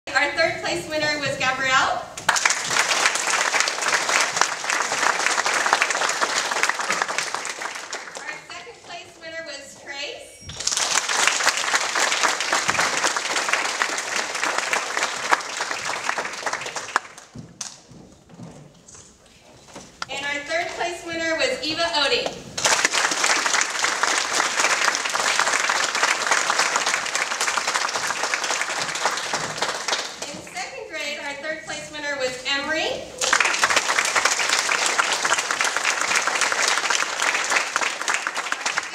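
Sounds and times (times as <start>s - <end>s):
audience applauding: 2.2s - 8.5s, 10.6s - 17.8s, 22.6s - 30.4s, 33.2s - 38.9s.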